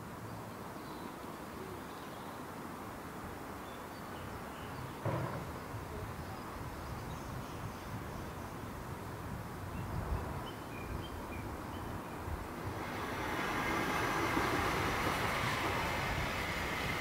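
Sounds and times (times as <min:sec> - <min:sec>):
dull thump: 0:05.0 - 0:05.6.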